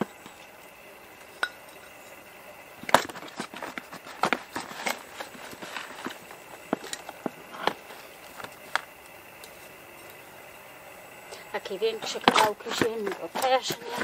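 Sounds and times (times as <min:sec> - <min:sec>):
trowel scraping soil: 0:02.8 - 0:09.8, 0:12.0 - 0:14.0.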